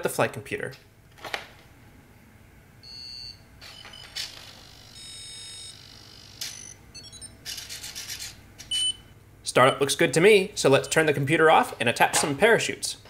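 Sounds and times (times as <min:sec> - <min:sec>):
buzzer beeping: 0:02.8 - 0:07.4.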